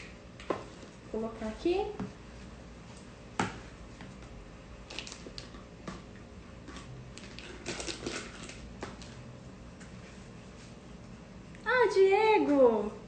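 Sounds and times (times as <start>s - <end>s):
squishy plastic bag sounds: 4.8s - 5.6s, 7.1s - 9.2s.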